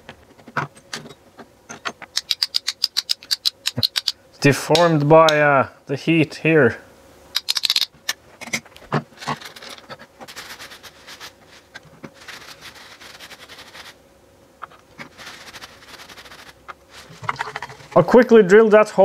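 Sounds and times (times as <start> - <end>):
small metal parts clattering: 0.5 - 4.2, 7.4 - 8.6, 9.2 - 10.7, 17.1 - 18.0
paper towel crumpling: 9.2 - 14.0, 15.0 - 18.0.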